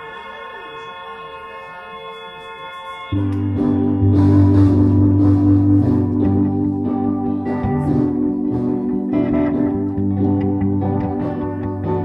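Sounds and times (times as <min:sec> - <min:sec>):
keyboard: 0:00.0 - 0:12.0
electric guitar: 0:03.1 - 0:12.0
drum kit: 0:03.2 - 0:12.0
heavy bass line: 0:03.2 - 0:12.0.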